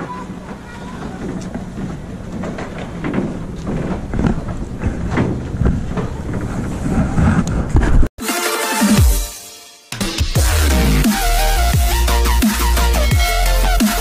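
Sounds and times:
boat engine rumble: 0.0s - 8.0s
wind buffeting microphone: 0.0s - 8.1s
electronic dance music: 8.2s - 14.0s.

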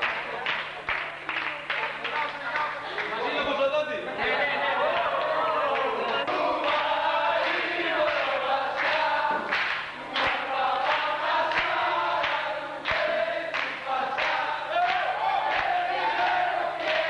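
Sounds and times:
hand claps: 0.0s - 3.1s, 5.8s - 17.0s
group of voices singing: 4.1s - 17.0s.

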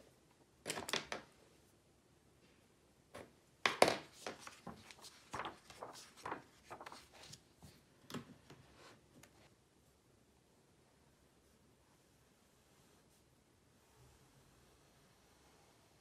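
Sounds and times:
paper page turning and rustling: 3.7s - 7.8s.

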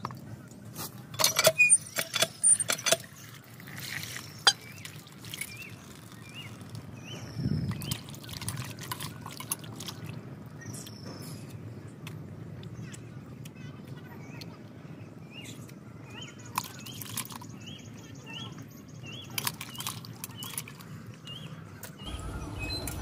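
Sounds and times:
clinks against steel: 1.1s - 3.1s
dripping water: 2.8s - 6.9s.

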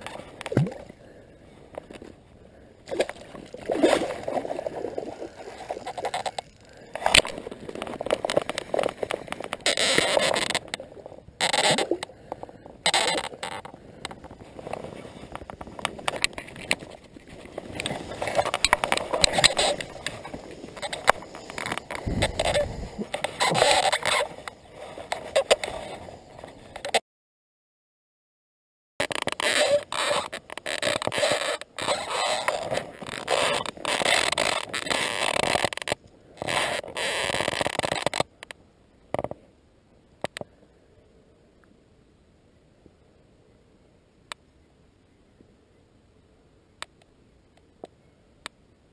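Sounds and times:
scratchy rustling on microphone: 3.2s - 10.8s, 12.8s - 27.0s, 29.0s - 38.3s.

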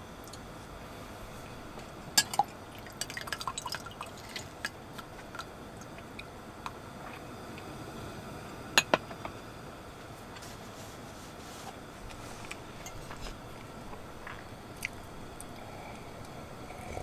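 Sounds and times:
liquid dripping: 2.2s - 6.8s.

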